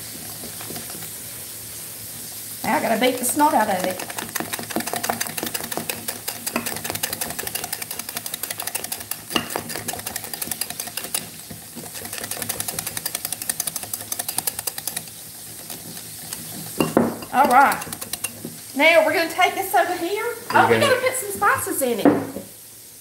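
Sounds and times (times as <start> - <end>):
whisk clicking against glass: 3.2 - 18.6.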